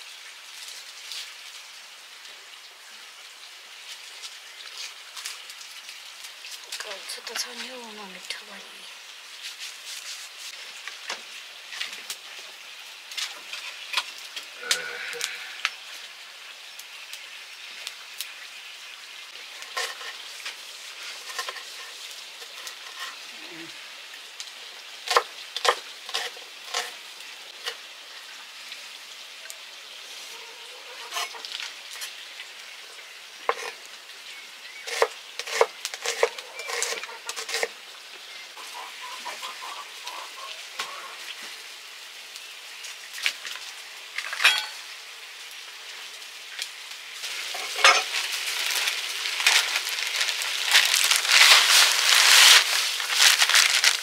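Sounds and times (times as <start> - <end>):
food sizzling in a pan: 0.0 - 54.0.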